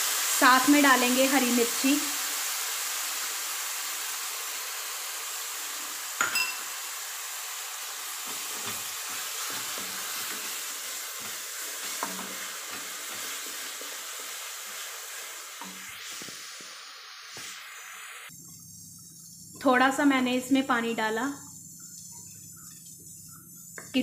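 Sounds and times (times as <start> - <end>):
masala sizzling in a pan: 0.0 - 24.0
sharp clink: 6.2 - 6.7.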